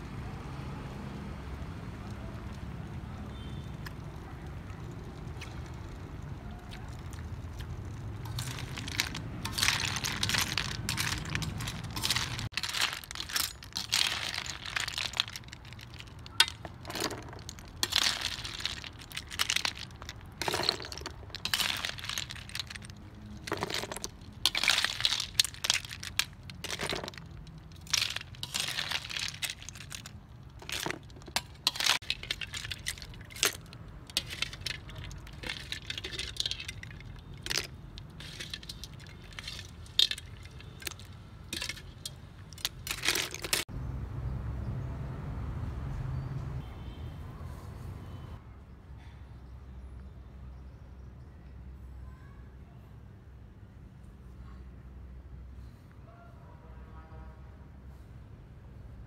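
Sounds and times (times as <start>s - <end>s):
snail shells clattering on metal: 4.8s - 43.7s.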